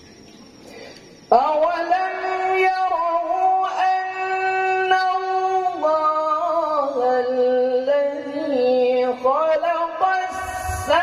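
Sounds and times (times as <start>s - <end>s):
man chanting melodically: 1.4s - 11.0s.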